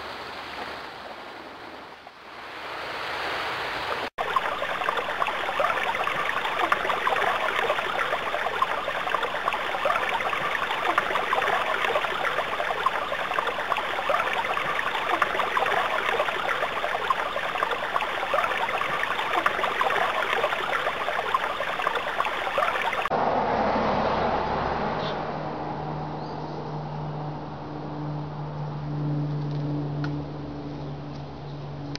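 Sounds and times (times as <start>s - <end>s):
stream babbling: 0.0s - 23.2s.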